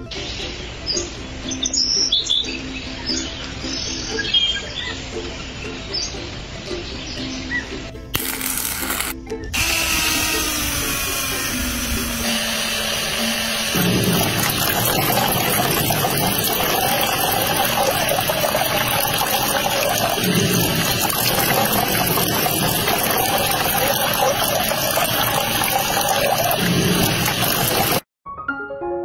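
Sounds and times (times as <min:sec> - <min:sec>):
water pouring into a tray: 0:13.8 - 0:28.0.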